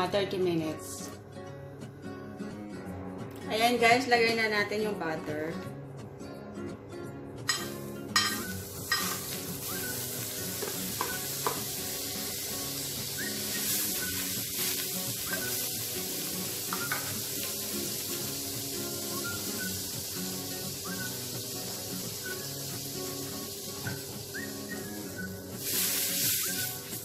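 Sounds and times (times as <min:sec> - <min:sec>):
butter sizzling on hot plate: 0:07.5 - 0:27.0.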